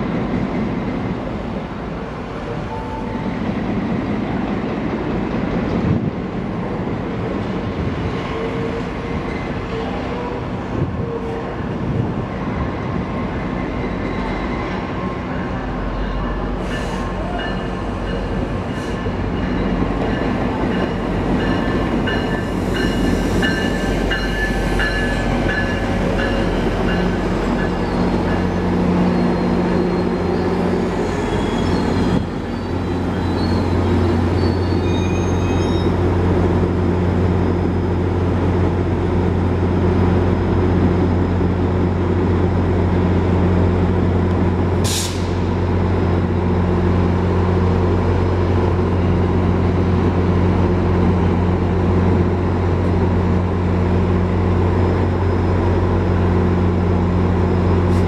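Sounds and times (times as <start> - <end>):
diesel locomotive drone: 0.0 - 58.0
train cars rolling: 0.0 - 58.0
wheel and brake squeals: 13.7 - 19.7, 26.4 - 36.1.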